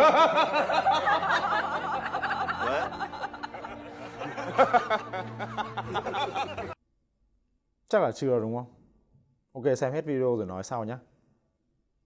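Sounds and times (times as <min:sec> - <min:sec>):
man laughing: 0:00.0 - 0:06.8.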